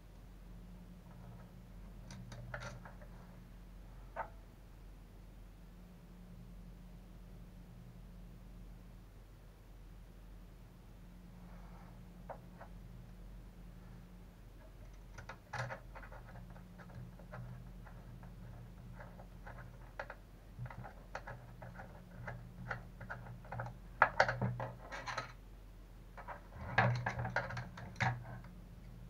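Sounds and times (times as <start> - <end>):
steady low hum: 0.0 - 29.0
small parts clicking and scraping: 1.0 - 3.3, 14.6 - 25.4, 26.1 - 28.6.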